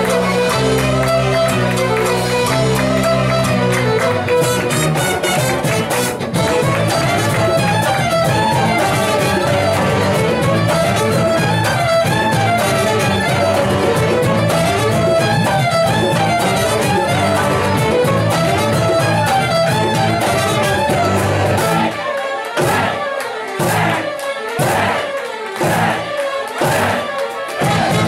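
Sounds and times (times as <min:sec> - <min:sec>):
fiddles playing melody: 0:00.0 - 0:28.0.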